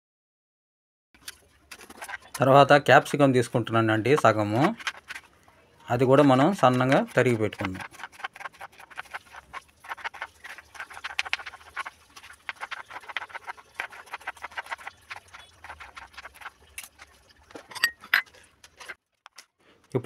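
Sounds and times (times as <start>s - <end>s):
knife chopping on plastic board: 6.7s - 11.8s.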